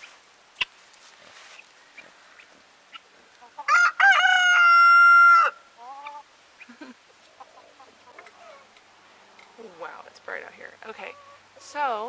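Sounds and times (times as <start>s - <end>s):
faint chickens clucking: 1.5s - 3.9s, 4.5s - 11.9s
rooster crowing: 3.7s - 5.6s.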